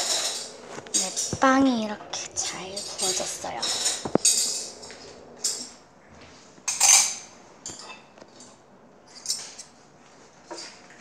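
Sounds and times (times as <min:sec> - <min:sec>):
kitchenware clinking and clattering: 0:00.0 - 0:05.8, 0:06.6 - 0:09.8, 0:10.5 - 0:11.0.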